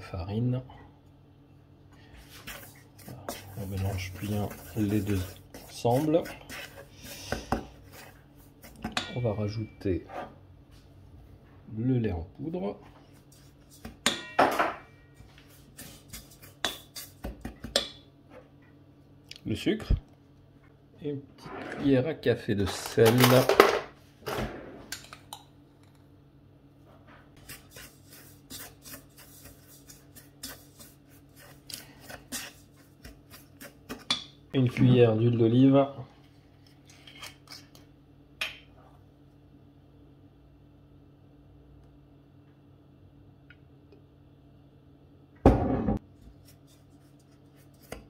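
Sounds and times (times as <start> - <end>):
wooden spoon scraping in bowl: 2.2 - 9.0, 27.4 - 34.1.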